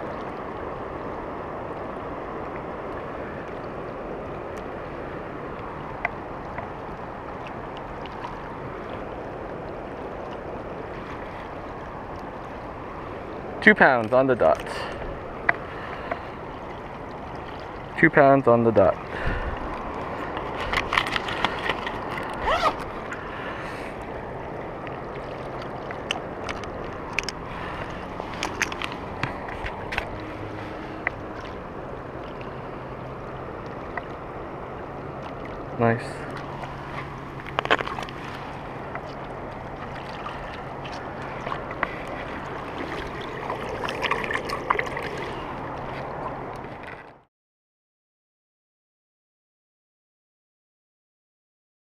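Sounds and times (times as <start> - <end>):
shallow water lapping: 0.0 - 47.2
small clicks and splashes: 5.6 - 9.2, 18.7 - 23.2, 24.8 - 31.6, 35.1 - 47.2.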